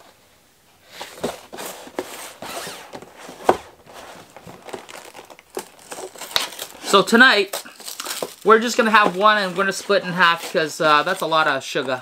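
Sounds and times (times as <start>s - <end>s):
cardboard box scraping and rustling: 0.9s - 6.9s, 7.8s - 11.3s
cardboard snapping: 4.3s - 6.8s.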